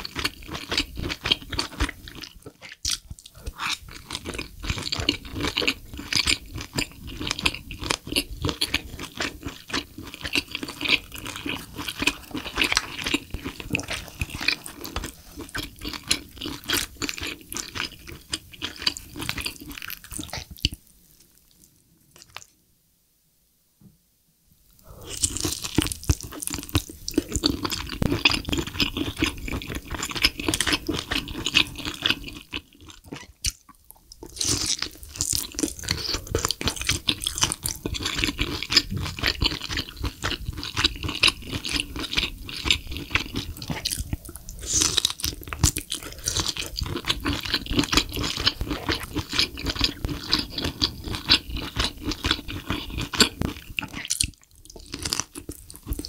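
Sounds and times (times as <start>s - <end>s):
close chewing and mouth clicks: 0.0s - 22.6s, 24.8s - 56.0s.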